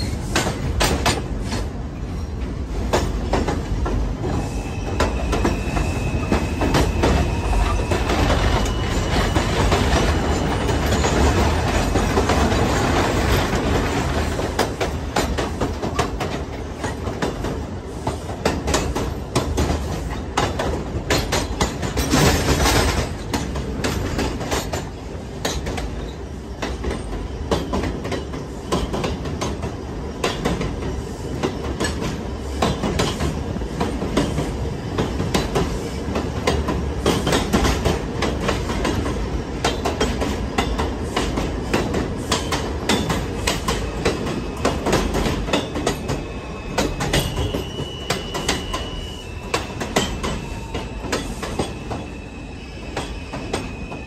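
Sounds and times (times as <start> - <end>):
train rattling: 0.0 - 54.0
train rumbling on elevated track: 0.0 - 54.0
wheels clicking over rail joints: 6.6 - 46.2.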